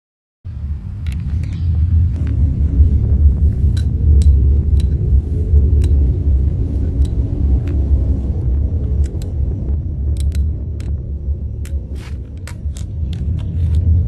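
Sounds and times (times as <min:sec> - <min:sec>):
deep rumble: 0:00.5 - 0:14.0
sharp ticks: 0:03.7 - 0:05.0, 0:05.7 - 0:06.1, 0:06.9 - 0:07.9, 0:08.9 - 0:09.5, 0:10.1 - 0:11.0.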